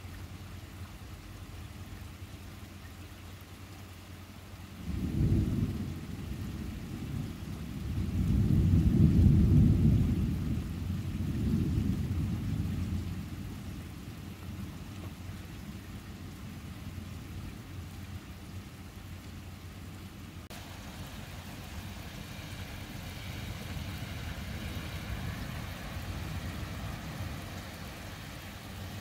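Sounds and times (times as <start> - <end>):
steady rain: 0.0 - 29.0
thunder rumbling: 4.8 - 14.8, 20.5 - 29.0.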